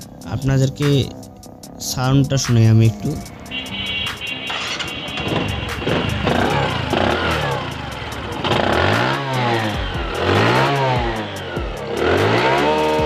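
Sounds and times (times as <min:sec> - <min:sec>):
motorcycle engine revving: 0:03.3 - 0:13.0.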